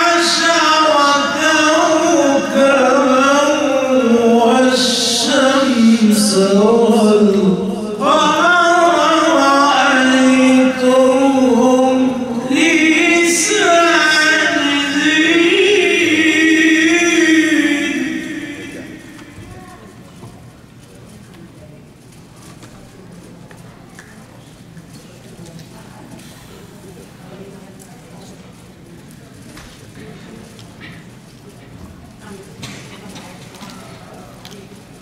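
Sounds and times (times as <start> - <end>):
man reciting melodically into microphone: 0.0 - 19.6.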